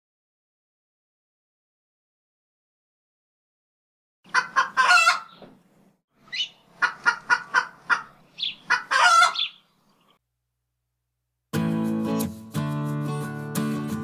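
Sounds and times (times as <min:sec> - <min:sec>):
chicken cackling and squawking: 0:04.3 - 0:05.5, 0:06.2 - 0:09.7.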